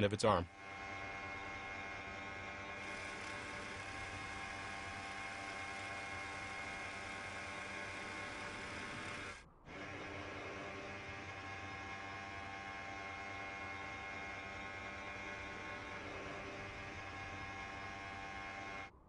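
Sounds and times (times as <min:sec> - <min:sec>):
buzzing hum of held tones: 0:00.0 - 0:19.0.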